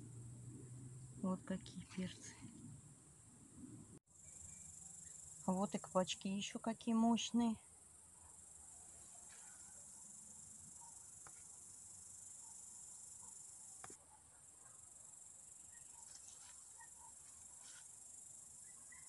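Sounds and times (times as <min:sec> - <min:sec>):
insects chirring: 0:04.1 - 0:19.0.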